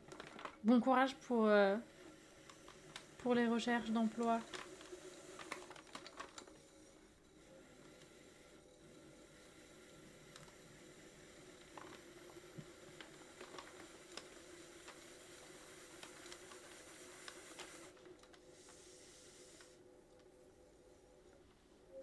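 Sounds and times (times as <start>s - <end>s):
electric pottery wheel hum: 0.0s - 22.0s.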